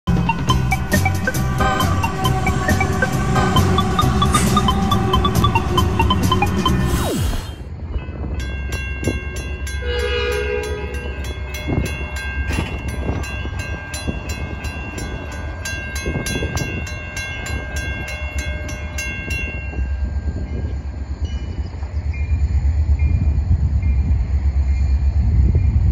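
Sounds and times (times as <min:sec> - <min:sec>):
railroad crossing bells ringing: 0:00.1 - 0:06.9, 0:07.7 - 0:25.9
train horn: 0:09.8 - 0:12.0.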